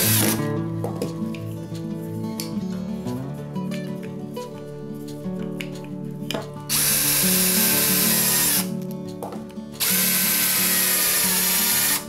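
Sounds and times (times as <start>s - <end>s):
cordless drill driving screws: 0.0s - 0.4s, 6.7s - 8.7s, 9.8s - 12.0s.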